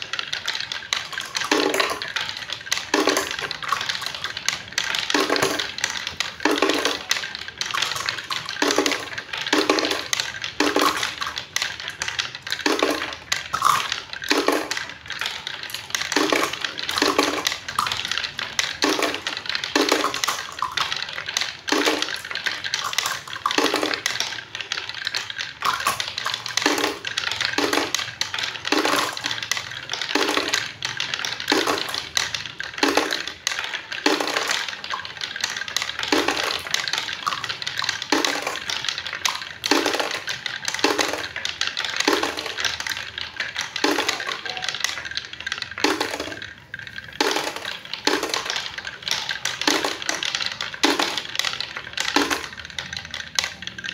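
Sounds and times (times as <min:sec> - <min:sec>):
balls rolling on wooden tracks: 0:00.0 - 0:53.9
sharp wooden clacks: 0:00.0 - 0:53.9.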